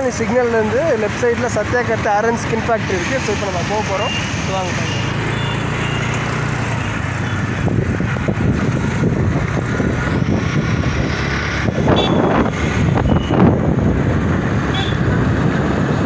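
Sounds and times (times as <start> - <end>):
road traffic: 0.0 - 16.0
motorbike engine: 2.8 - 16.0
wind buffeting microphone: 7.3 - 16.0.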